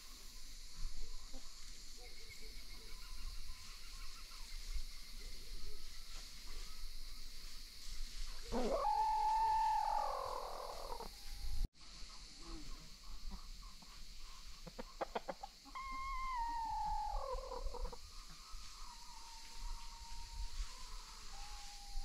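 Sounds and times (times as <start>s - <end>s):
rooster crowing: 8.5s - 11.1s, 15.7s - 18.0s
short clucks: 14.6s - 15.6s.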